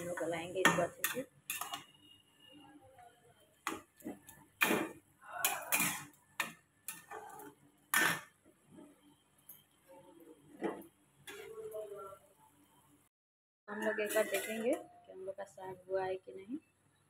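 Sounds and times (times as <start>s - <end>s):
metal spatula scraping a metal pan: 0.0s - 2.2s, 3.7s - 8.9s, 13.8s - 14.8s.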